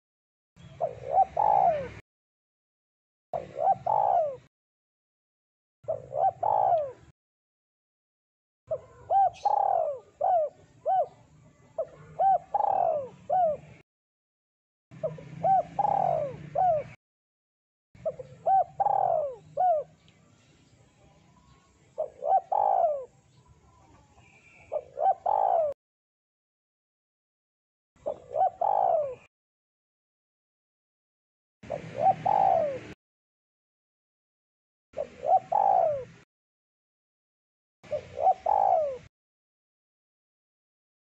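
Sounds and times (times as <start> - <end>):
dove cooing: 0.7 - 2.0, 3.4 - 4.5, 5.9 - 7.1, 8.7 - 13.8, 15.0 - 17.0, 18.0 - 20.0, 21.9 - 25.8, 28.0 - 29.3, 31.6 - 33.0, 35.0 - 36.2, 37.9 - 39.1.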